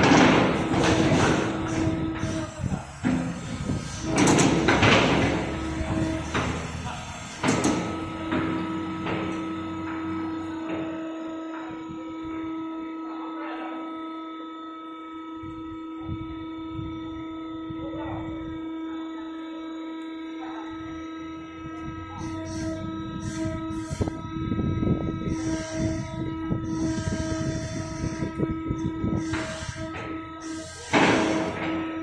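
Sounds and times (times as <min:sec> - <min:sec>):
irregular rattling and scraping: 0:00.0 - 0:10.9
heavy industrial machinery humming: 0:00.0 - 0:32.0.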